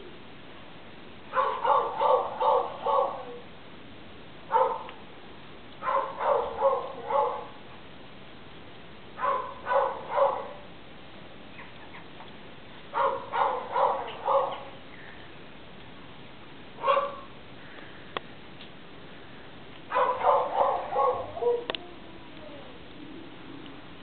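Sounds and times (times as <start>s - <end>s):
dog barking: 1.3s - 3.4s, 4.5s - 5.0s, 5.8s - 7.6s, 9.2s - 10.7s, 12.9s - 14.8s, 16.8s - 17.3s, 19.9s - 21.7s.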